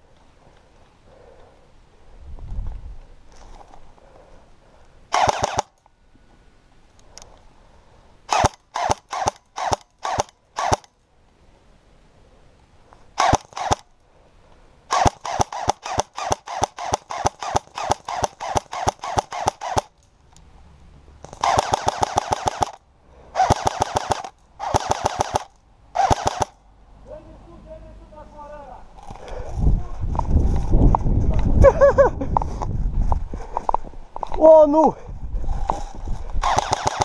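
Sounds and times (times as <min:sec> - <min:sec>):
airsoft guns firing: 0:05.1 - 0:05.8, 0:08.3 - 0:10.9, 0:13.2 - 0:13.9, 0:14.9 - 0:20.0, 0:21.2 - 0:22.8, 0:23.4 - 0:26.6, 0:36.4 - 0:37.0.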